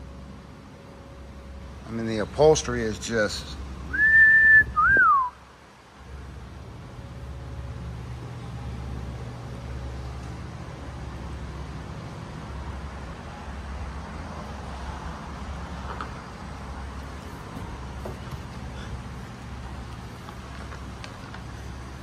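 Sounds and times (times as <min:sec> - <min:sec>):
low background rumble and hum: 0:00.0 - 0:22.0
falling whistle: 0:03.9 - 0:05.4.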